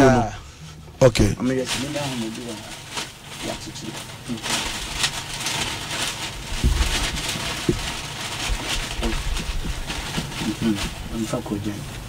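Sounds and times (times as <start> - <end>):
plastic bag crinkling: 1.4 - 12.0
dull knocks: 6.4 - 11.1.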